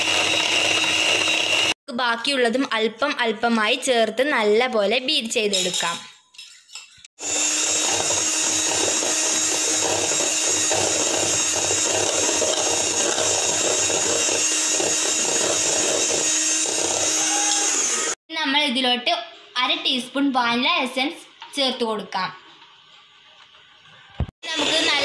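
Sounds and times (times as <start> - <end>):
electric hand mixer whisking: 0.0 - 1.8, 7.2 - 18.2, 24.4 - 25.0.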